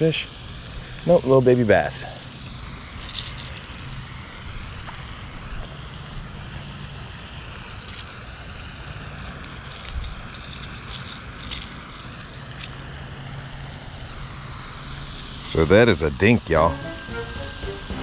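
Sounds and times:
outdoor hiss: 0.0 - 16.6
handling clicks and rattles: 3.0 - 4.0, 7.2 - 13.0.

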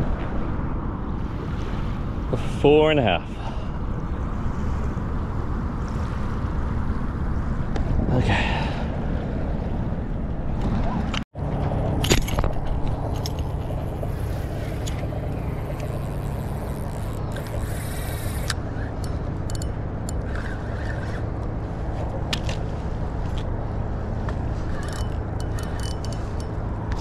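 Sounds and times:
low engine hum: 0.0 - 27.0.

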